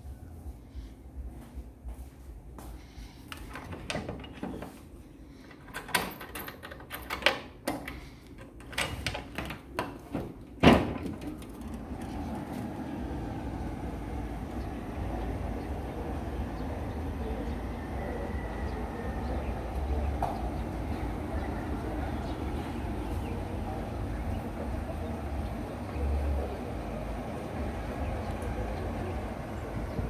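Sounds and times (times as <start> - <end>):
steady outdoor noise: 0.0 - 30.0
window frame rattling and knocking: 3.5 - 4.8.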